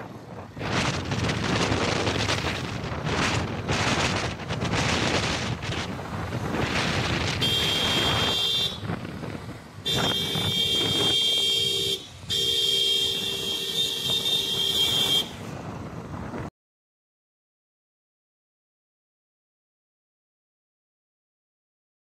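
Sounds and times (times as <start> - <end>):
wind rush on microphone: 0.0 - 16.5
vehicle horn blasts: 7.4 - 8.9, 9.8 - 15.5.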